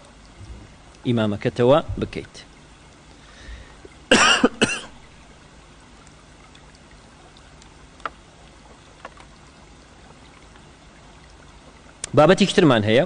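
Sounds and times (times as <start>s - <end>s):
faint room hiss: 0.0s - 13.0s.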